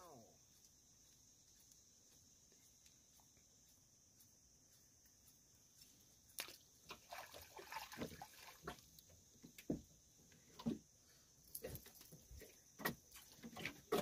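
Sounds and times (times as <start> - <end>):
small rustling splashes: 6.3 - 9.6.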